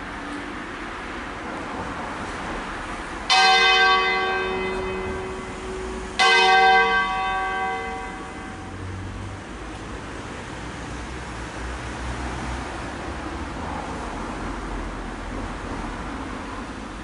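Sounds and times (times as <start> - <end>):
church bell strokes: 3.3 - 9.0.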